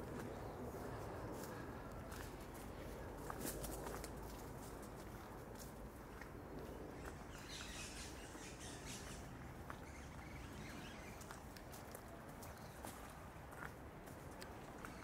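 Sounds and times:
faint low outdoor hum: 0:00.0 - 0:15.0
footsteps on walking track: 0:00.0 - 0:15.0
bird chirping: 0:07.0 - 0:11.4.

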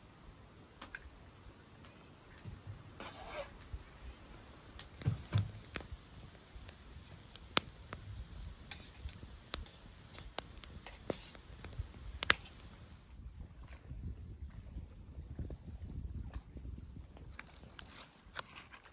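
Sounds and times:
campfire crackling: 0:00.1 - 0:13.2
dull thuds: 0:05.0 - 0:05.9.

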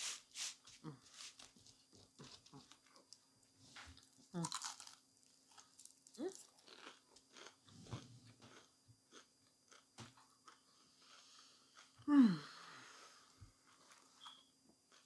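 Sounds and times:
person chewing food: 0:04.0 - 0:12.1.

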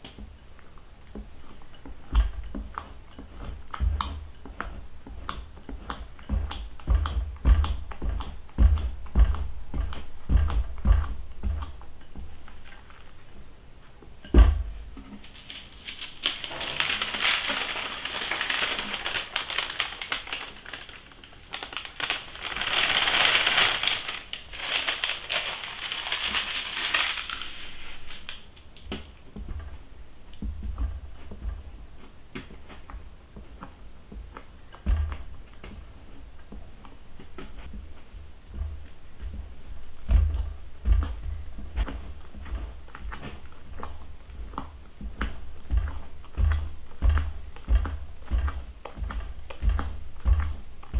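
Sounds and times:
powder sifted through a sieve: 0:14.7 - 0:28.6.

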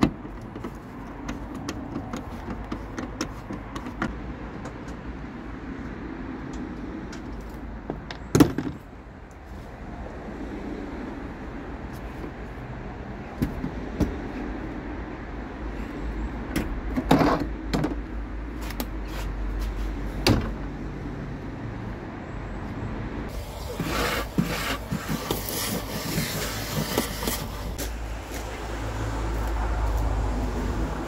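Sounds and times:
scraping and rustling: 0:23.3 - 0:28.5.

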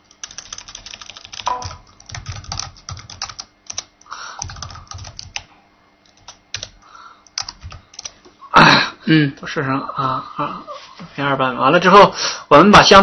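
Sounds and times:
computer keyboard typing: 0:00.0 - 0:08.2.

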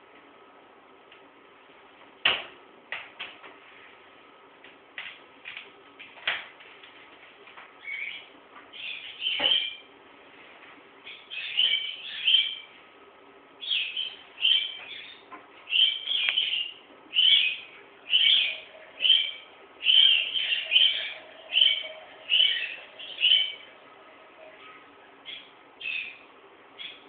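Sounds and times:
parrot calling: 0:13.6 - 0:27.0.

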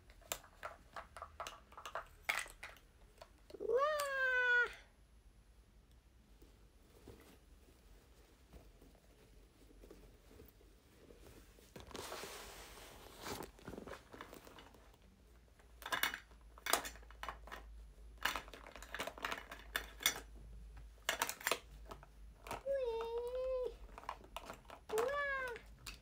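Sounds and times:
rustle of handling: 0:06.2 - 0:15.8.

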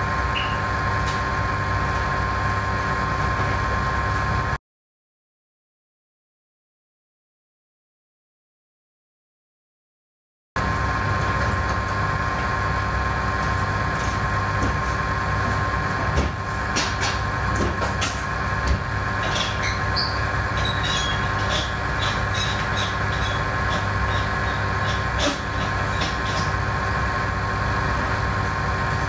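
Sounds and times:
lab machinery humming: 0:00.0 - 0:04.6, 0:10.6 - 0:29.0.

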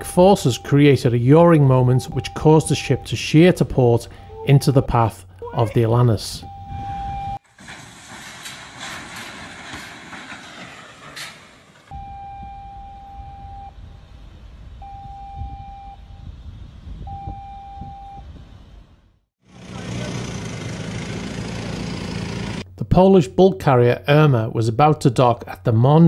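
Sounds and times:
steady low rumble: 0:00.0 - 0:16.8
rushing noise with crackles: 0:07.4 - 0:11.9.

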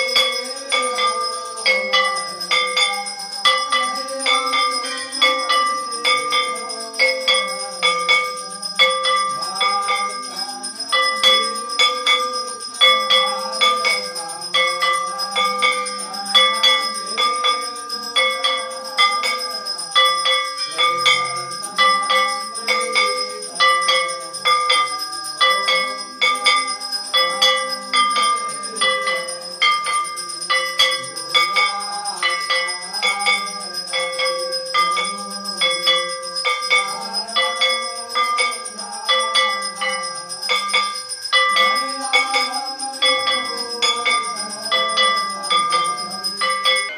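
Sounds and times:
temple bells ringing: 0:00.0 - 0:46.9.

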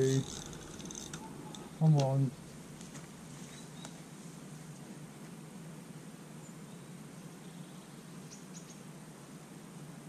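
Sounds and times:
low outdoor background noise: 0:00.0 - 0:10.0
faint high bird chirps: 0:03.4 - 0:04.0, 0:06.4 - 0:08.9.

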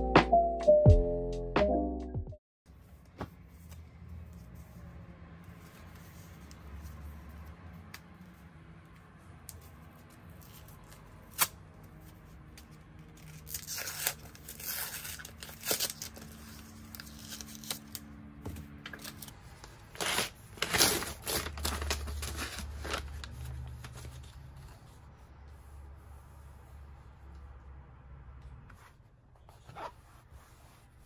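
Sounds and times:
tape and paper tearing: 0:13.2 - 0:18.1.

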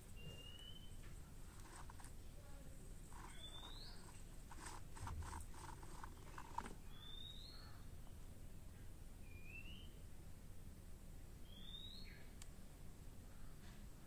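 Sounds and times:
bird whistled call: 0:00.2 - 0:01.0, 0:06.8 - 0:07.7, 0:09.2 - 0:10.0, 0:11.4 - 0:12.3.

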